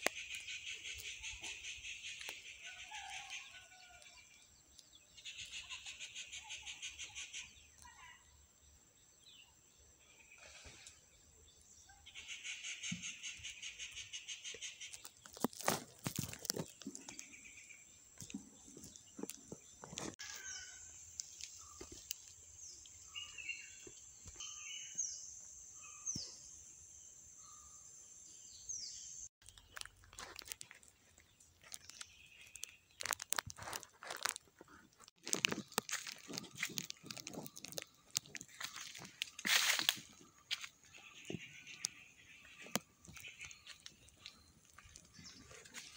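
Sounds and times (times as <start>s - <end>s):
crunching and handling noises: 14.8s - 17.4s, 18.1s - 22.4s, 29.4s - 45.9s.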